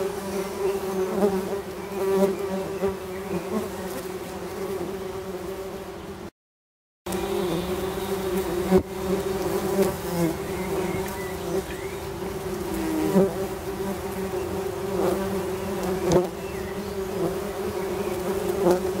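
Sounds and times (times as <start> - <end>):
bumblebees buzzing: 0.0 - 6.3, 7.1 - 19.0.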